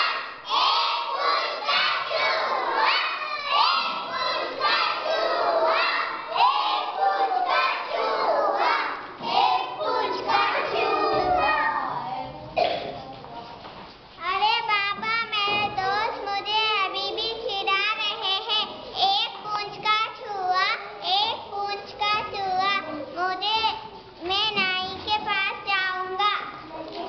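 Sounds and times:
young children shouting: 0.0s - 12.2s.

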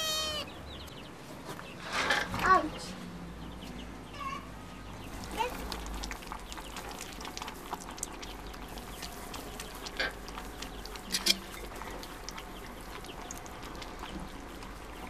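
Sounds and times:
kittens lapping milk: 5.1s - 15.0s.

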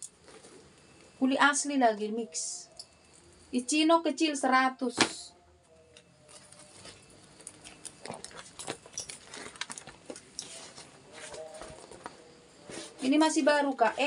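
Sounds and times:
handbag rustling and clicking: 6.2s - 12.1s.

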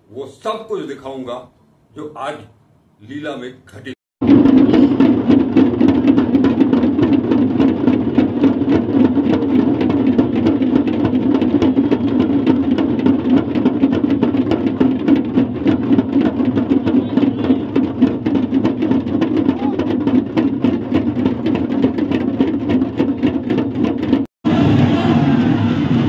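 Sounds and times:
large drums beaten fast: 4.2s - 26.0s.

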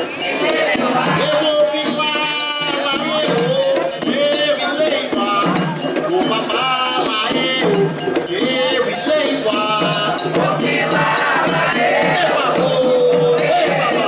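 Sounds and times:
women singing a chant: 0.0s - 1.9s, 9.6s - 14.0s.

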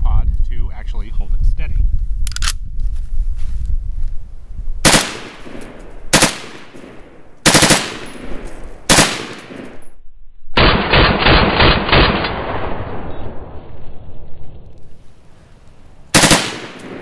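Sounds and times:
rifle firing bursts: 4.8s - 9.8s, 10.6s - 12.4s, 16.1s - 17.0s.

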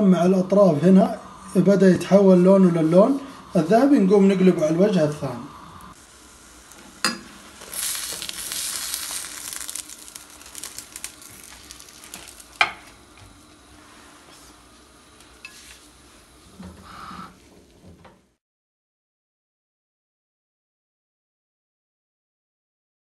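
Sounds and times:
pastry sizzling in oil: 0.1s - 16.4s.

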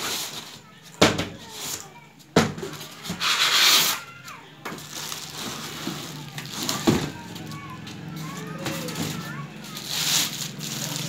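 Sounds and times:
plastic wrapping crinkling: 2.8s - 11.0s.

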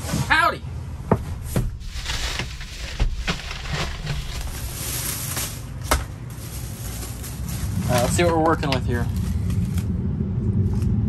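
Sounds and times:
low steady rumble: 0.1s - 11.0s
plastic bags rustling: 1.7s - 9.8s.

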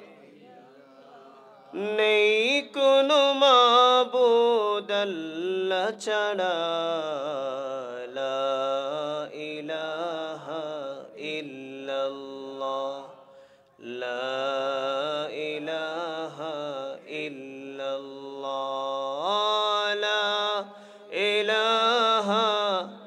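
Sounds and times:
man chanting: 0.0s - 13.2s, 13.8s - 23.0s.

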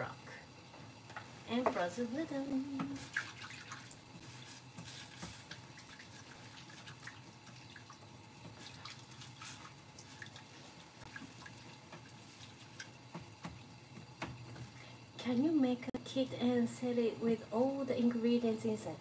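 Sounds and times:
liquid splashing and dripping: 2.8s - 14.8s.

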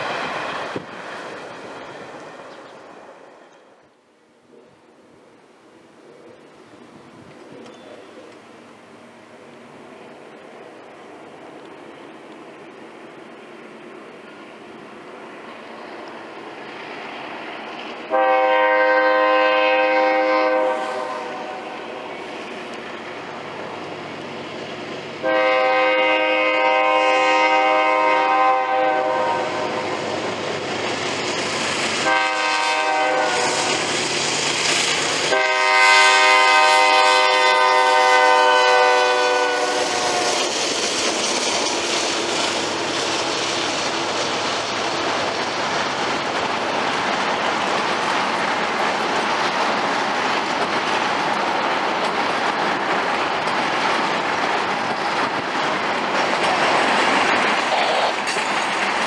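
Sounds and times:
train passing: 0.0s - 59.0s
locomotive horn blasts: 18.1s - 21.8s, 25.2s - 29.9s, 32.0s - 33.7s, 35.3s - 40.4s
steel wheels clattering on rail joints: 38.8s - 59.0s.

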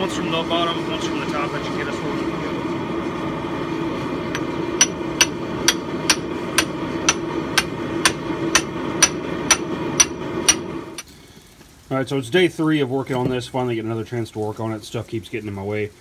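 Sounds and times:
steady rumbling noise: 0.0s - 16.0s
hammer ringing on steel: 4.4s - 10.7s.

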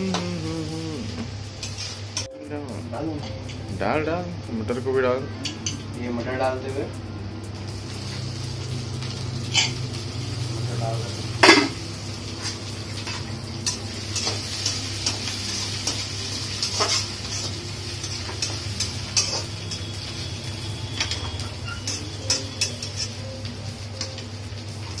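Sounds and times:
vegetables sizzling in pan: 0.0s - 25.0s
metal spoon scraping pan: 9.4s - 9.9s, 16.6s - 20.3s, 20.9s - 23.4s.

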